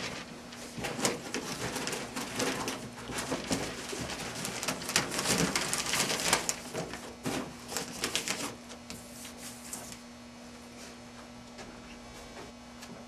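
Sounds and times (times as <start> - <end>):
paper and tape crinkling: 0.0 - 10.0.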